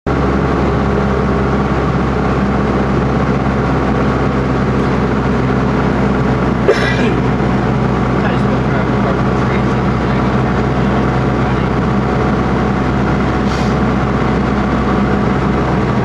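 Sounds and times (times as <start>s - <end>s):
airplane engine and propeller droning: 0.1s - 16.0s.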